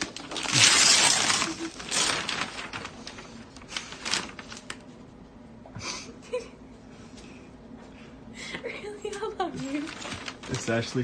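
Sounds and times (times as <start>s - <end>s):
wrapping paper tearing: 0.0s - 4.9s, 9.6s - 11.0s
paper rustling: 0.0s - 5.0s, 9.6s - 11.0s.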